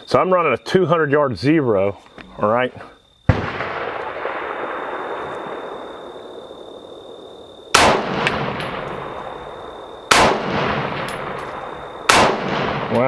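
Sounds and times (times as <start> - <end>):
rifle shots with echo: 3.3 - 13.0.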